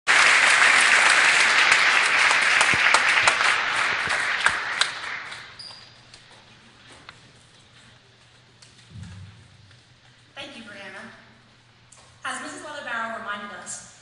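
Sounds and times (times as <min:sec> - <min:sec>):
audience applause: 0:00.1 - 0:05.6.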